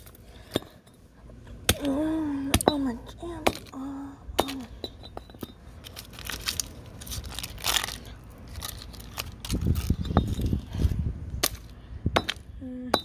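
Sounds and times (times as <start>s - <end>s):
scraping crunch on concrete: 5.1s - 12.5s.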